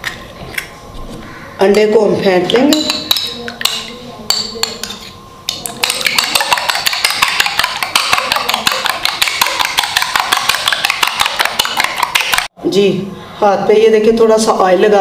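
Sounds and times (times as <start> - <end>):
spoon beating eggs in bowl: 2.5 - 12.5.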